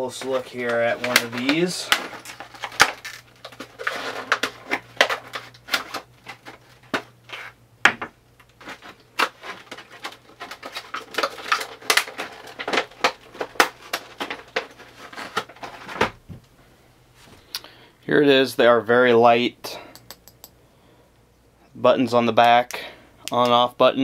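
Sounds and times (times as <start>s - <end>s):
plastic blister packaging crackling: 0.1s - 7.6s, 8.4s - 16.1s.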